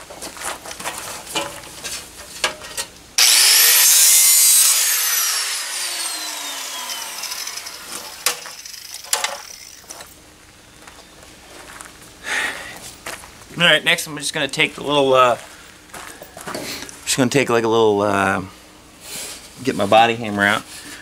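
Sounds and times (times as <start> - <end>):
rotary power tool whining: 3.2 - 10.1.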